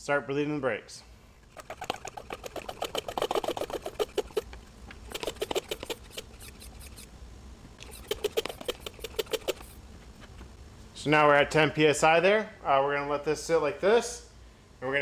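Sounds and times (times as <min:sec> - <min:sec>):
hand pump strokes: 0:01.5 - 0:07.1, 0:07.8 - 0:09.8.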